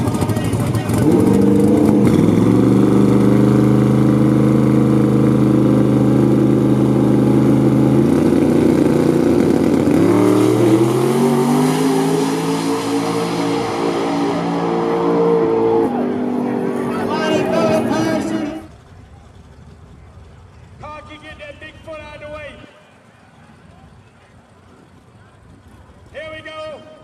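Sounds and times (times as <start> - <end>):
drag car engine revving: 0.0 - 20.8.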